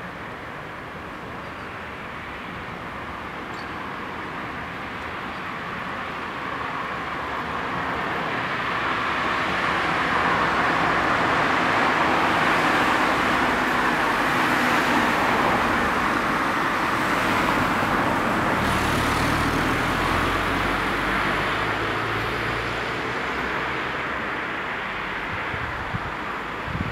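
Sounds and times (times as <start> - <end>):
car passing: 7.2 - 26.9.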